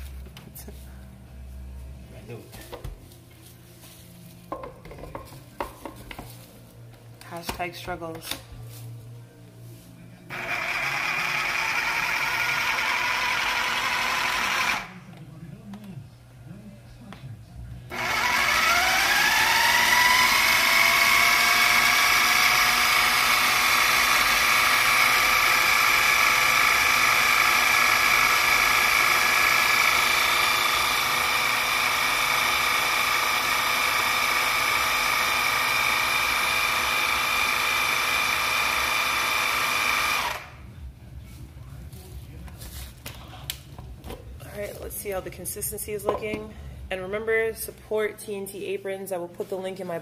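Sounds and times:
food processor motor whining: 10.3 - 15.0, 17.9 - 40.6.

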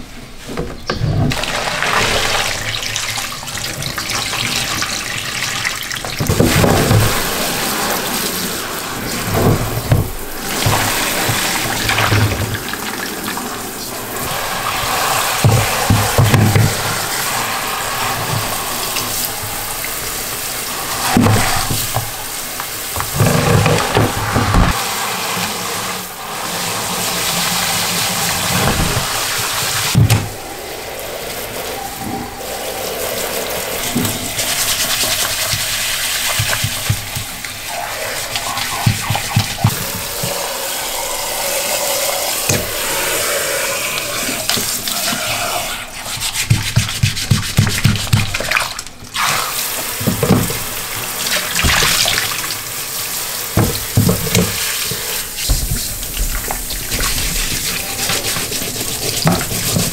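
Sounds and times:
shower head spraying water: 6.1 - 48.4, 49.2 - 59.9
brush scrubbing boots: 32.8 - 41.7, 42.5 - 49.3, 53.6 - 59.9.

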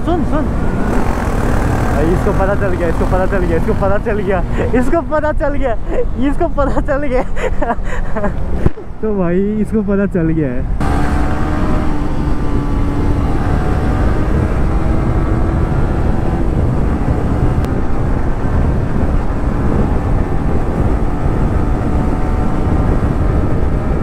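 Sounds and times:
motorcycle engine drone: 0.0 - 4.9, 10.8 - 24.0
wind buffeting microphone: 0.0 - 9.8, 10.6 - 24.0.

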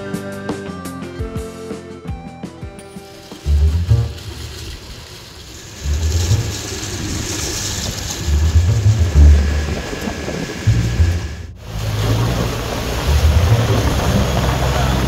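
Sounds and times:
boat engine: 2.8 - 15.0
water rushing: 2.8 - 15.0
wind buffeting microphone: 3.8 - 15.0.

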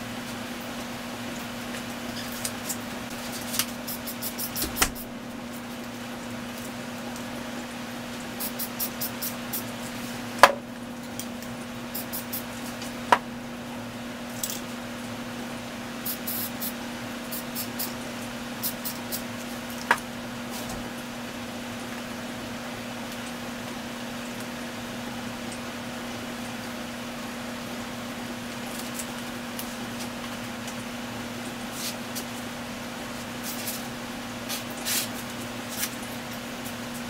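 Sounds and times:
spray can hissing: 3.7 - 5.1, 8.4 - 9.7, 11.9 - 12.5, 16.0 - 18.0, 18.6 - 19.3.

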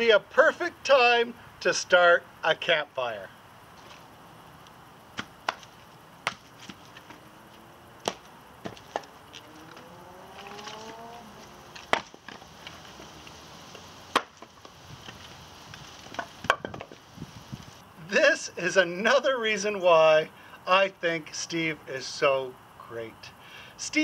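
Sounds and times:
firewood logs clunking onto pile: 8.0 - 9.4, 11.7 - 13.1, 14.1 - 17.0.

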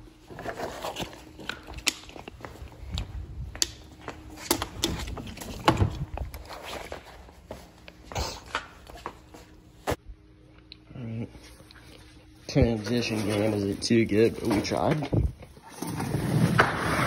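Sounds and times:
footsteps: 0.3 - 10.0, 11.4 - 15.4.

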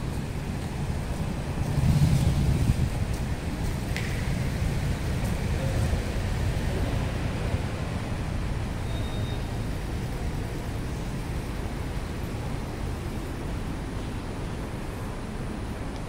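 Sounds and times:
road traffic rumble: 0.0 - 16.0
faint high whistle: 8.8 - 9.7.

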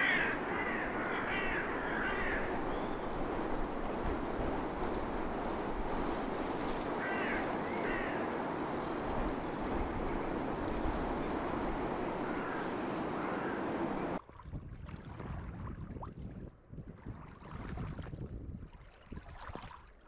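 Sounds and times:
steady outdoor rushing noise: 0.0 - 14.2.

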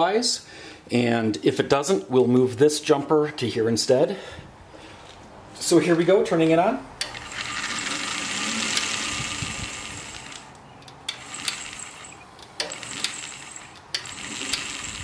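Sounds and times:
electric motor whine with brush hiss: 7.2 - 10.5, 11.2 - 15.0
sharp clicks: 10.1 - 14.8.

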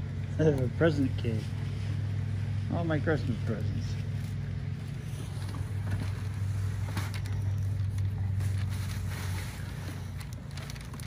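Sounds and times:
low mechanical hum: 0.0 - 11.0
tissue paper crinkling: 4.0 - 11.0.

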